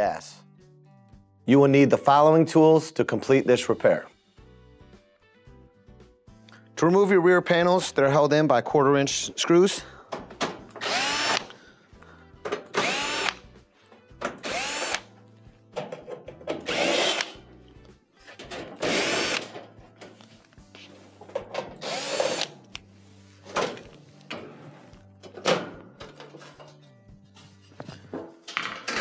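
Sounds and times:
cordless drill whirring: 10.8 - 11.6, 12.8 - 13.4, 14.4 - 15.1, 16.7 - 17.4, 18.9 - 19.4, 21.8 - 22.6.

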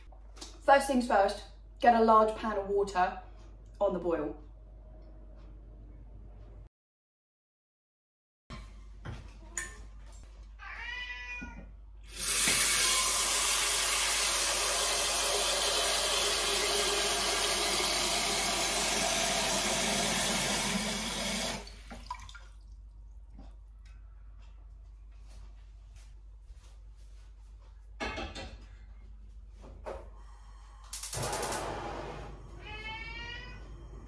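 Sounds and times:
cat meowing: 10.6 - 11.7, 32.6 - 33.8
tap water running into saucepan: 12.1 - 22.4.

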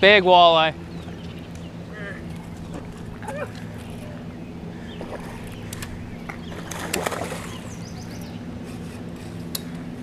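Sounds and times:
steady low hum: 0.0 - 10.0
bird chirping: 0.8 - 8.5.

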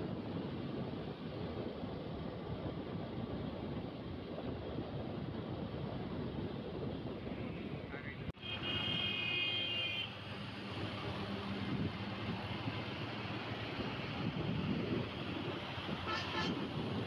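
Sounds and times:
wind rushing over microphone: 0.0 - 9.2, 10.1 - 17.0
road and traffic noise: 0.0 - 17.0
vehicle horn: 8.4 - 10.2, 16.0 - 16.7.

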